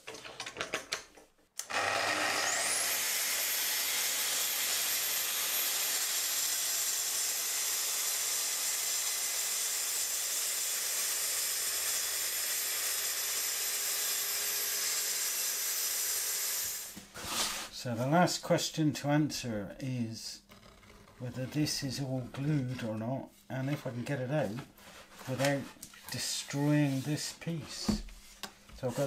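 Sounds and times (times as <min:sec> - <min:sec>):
track saw cutting wood: 0:01.6 - 0:17.0.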